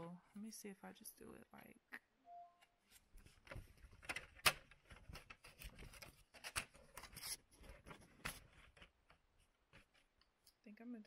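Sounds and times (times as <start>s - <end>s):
paper envelopes rustling: 3.0s - 10.1s.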